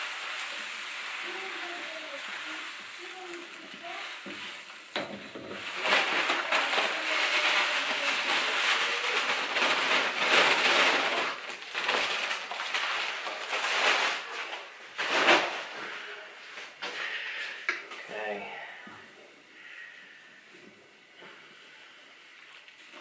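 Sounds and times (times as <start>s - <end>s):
grain pouring into water: 0.0s - 5.0s
wooden paddle stirring: 0.0s - 9.3s.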